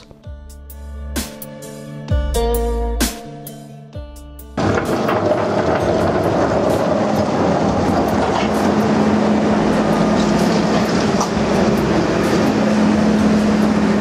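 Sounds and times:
metallic clanks: 0:04.6 - 0:12.6
diesel engine running loudly: 0:04.6 - 0:14.0.

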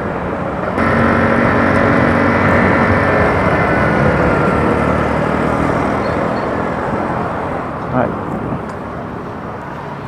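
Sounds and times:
wind and road noise: 0:00.0 - 0:10.0
motorcycle engine running: 0:00.8 - 0:04.2.

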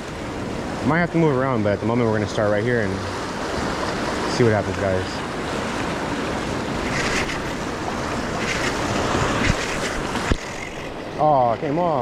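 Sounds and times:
ocean surf breaking: 0:00.0 - 0:12.0
wind buffeting microphone: 0:05.2 - 0:11.2.

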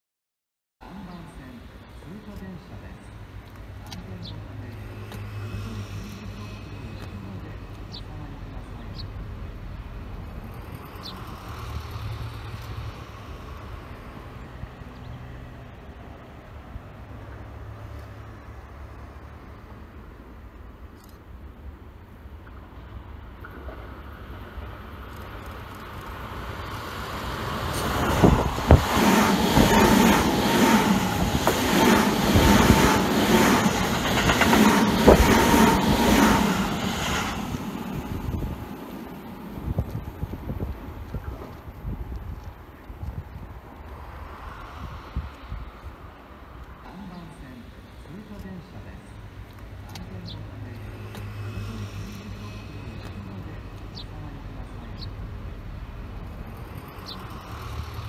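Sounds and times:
train wheels clacking over joints: 0:27.7 - 0:36.4.

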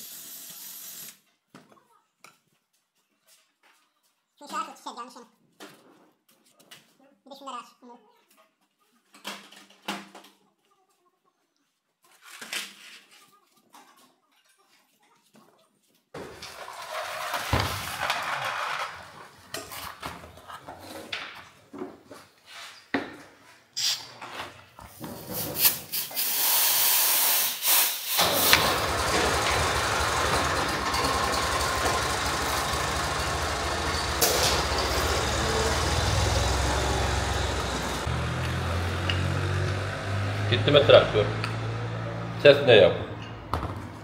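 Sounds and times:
tractor engine running: 0:28.2 - 0:42.3.

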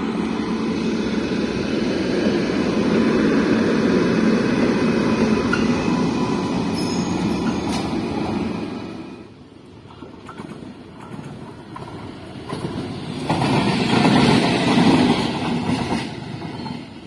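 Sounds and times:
locomotive wheels rumbling on rails: 0:00.0 - 0:17.0.

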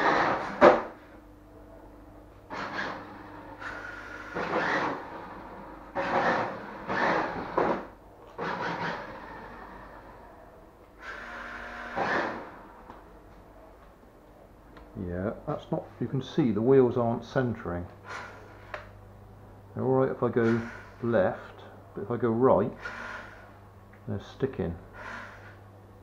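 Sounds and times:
toy car electric motor whirring: 0:22.8 - 0:23.5.

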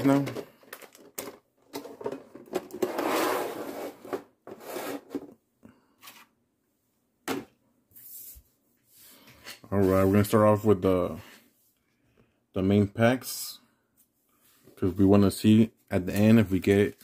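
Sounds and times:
paper rustling: 0:16.0 - 0:17.0.

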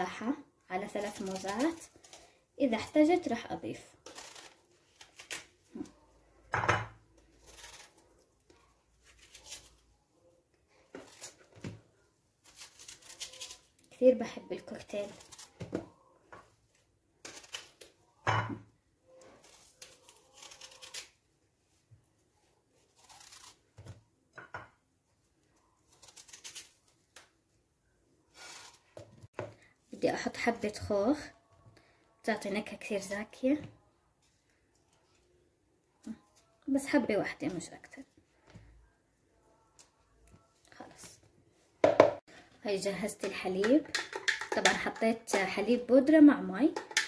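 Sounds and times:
knife scraping and slicing apple: 0:07.3 - 0:08.2, 0:12.4 - 0:13.8, 0:19.2 - 0:21.2, 0:22.8 - 0:24.0, 0:25.8 - 0:26.9.

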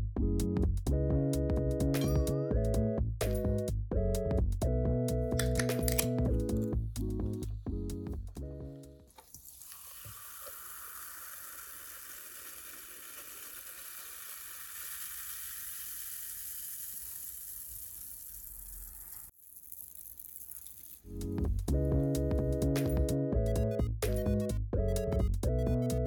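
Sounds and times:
cola pouring into a glass: 0:09.3 - 0:19.2
fizzing bubbles hissing: 0:09.3 - 0:19.3.

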